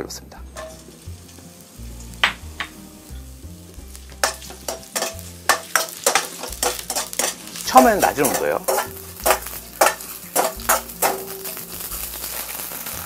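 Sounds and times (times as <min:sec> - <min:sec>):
food sizzling in oil: 0:00.4 - 0:13.0
metal ladle scraping a wok: 0:00.6 - 0:01.4, 0:04.2 - 0:13.0
knocks on a wok: 0:02.2 - 0:02.8.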